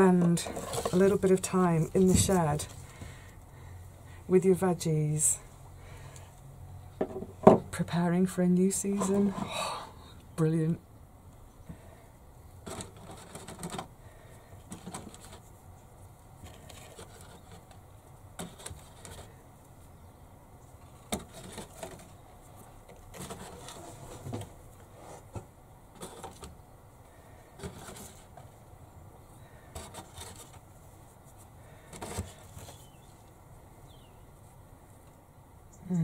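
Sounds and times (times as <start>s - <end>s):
rustling of handling: 0.0s - 3.7s, 12.6s - 20.0s, 20.6s - 28.8s, 29.4s - 33.5s.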